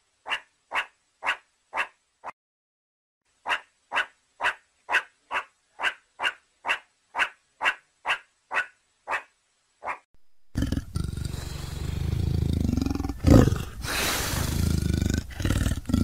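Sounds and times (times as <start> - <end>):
meerkat barking calls: 0.2 - 2.0, 3.4 - 10.0.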